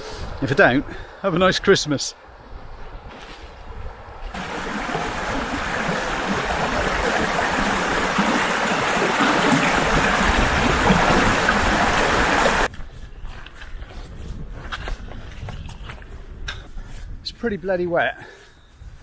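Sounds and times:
stream rushing over rocks: 0:04.4 - 0:12.7.

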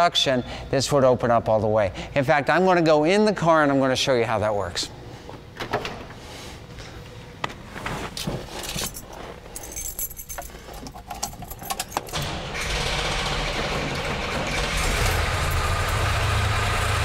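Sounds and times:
knocks and clicks of climbing in: 0:08.2 - 0:12.3
car engine idling: 0:12.3 - 0:17.0.

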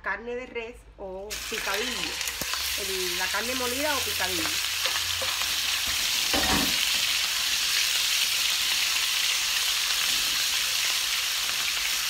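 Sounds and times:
ground beef sizzling in oil: 0:01.3 - 0:12.0.

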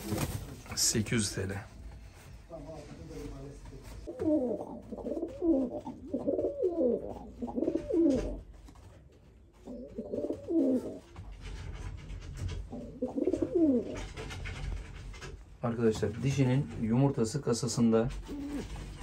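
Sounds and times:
pigeons cooing: 0:04.0 - 0:08.4, 0:09.6 - 0:11.1, 0:12.6 - 0:14.2, 0:18.2 - 0:19.0.

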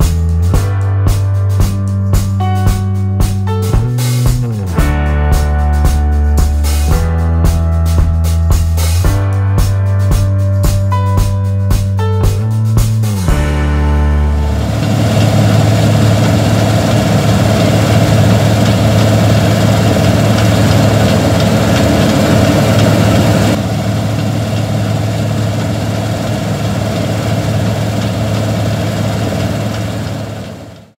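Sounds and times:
combine harvester running: 0:13.7 - 0:30.9.

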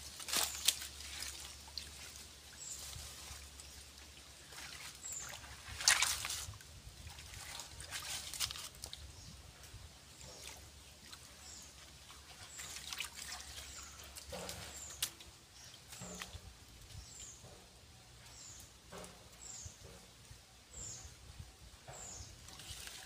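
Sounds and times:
hands splashing in muddy water: 0:04.4 - 0:09.0, 0:10.4 - 0:15.2.

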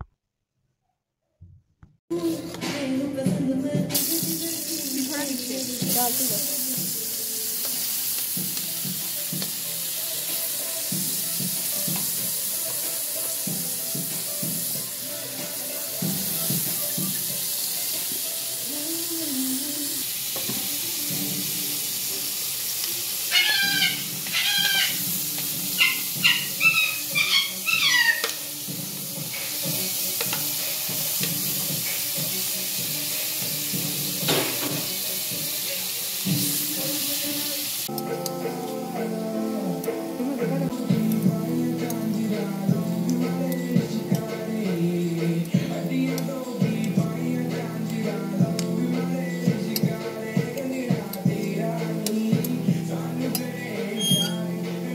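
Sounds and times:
vegetables sizzling in oil: 0:04.0 - 0:54.9
high chirping calls: 0:23.3 - 0:25.0, 0:25.7 - 0:28.3, 0:53.9 - 0:54.4.

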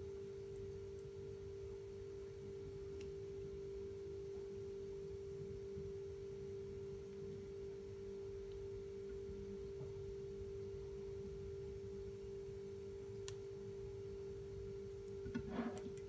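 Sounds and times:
faint steady electrical tone: 0:00.0 - 0:16.0.

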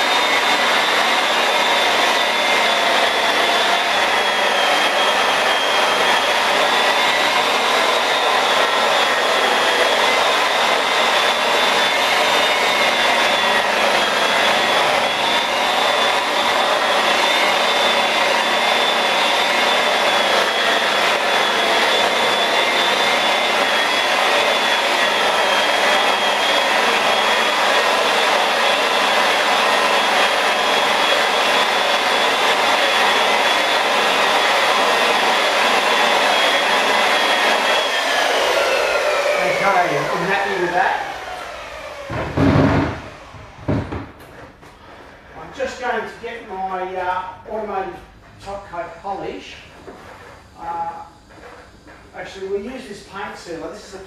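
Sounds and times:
rotary polisher motor whine: 0:00.0 - 0:47.0, 0:49.1 - 0:53.7.

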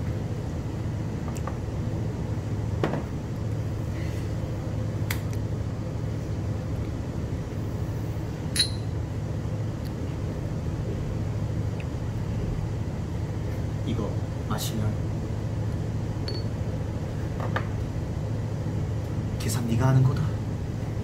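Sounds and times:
restaurant background hum: 0:00.0 - 0:21.0
glass clinking: 0:08.5 - 0:08.9, 0:16.2 - 0:16.5.

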